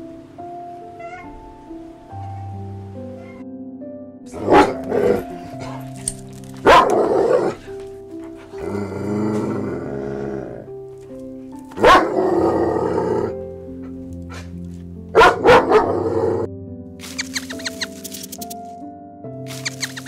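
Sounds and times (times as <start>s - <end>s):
background music: 0.0s - 20.0s
dog barking: 4.4s - 5.9s, 6.6s - 7.6s, 11.8s - 12.2s, 15.2s - 16.3s.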